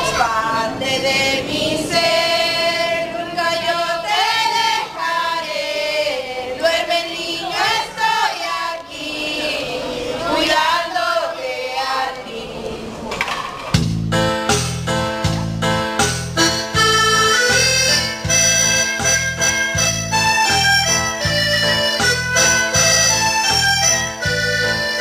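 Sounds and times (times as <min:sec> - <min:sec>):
women singing together: 0:00.0 - 0:13.1.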